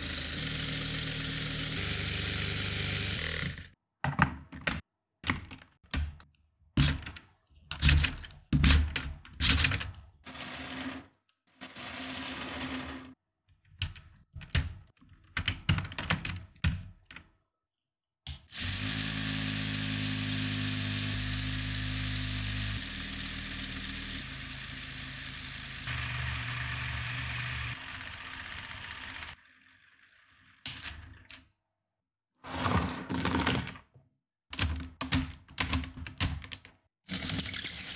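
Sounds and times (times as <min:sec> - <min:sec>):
toy gear train whirring: 0:00.0 - 0:03.8, 0:10.3 - 0:13.2, 0:18.6 - 0:30.7.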